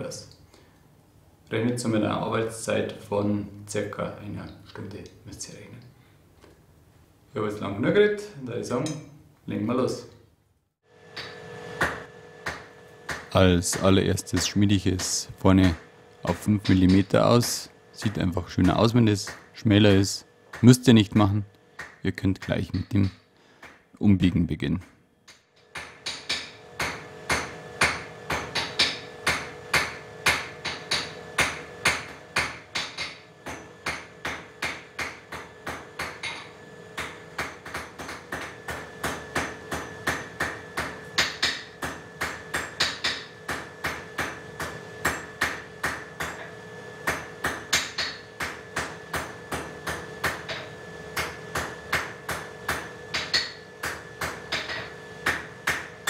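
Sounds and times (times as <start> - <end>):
hammer striking steel on anvil: 8.8 - 9.2, 11.1 - 19.5, 25.3 - 56.0.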